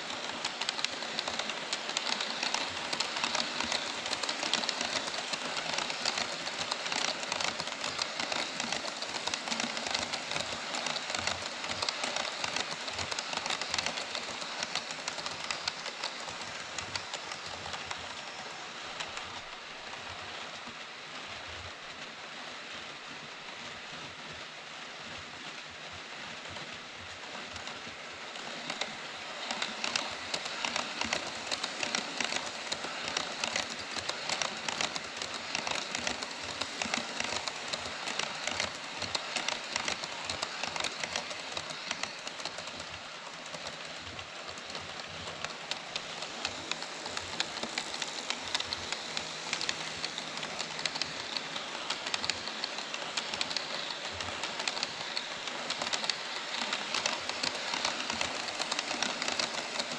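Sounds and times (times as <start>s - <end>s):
model train wheels rattling on track: 0.0s - 21.5s, 26.4s - 59.9s.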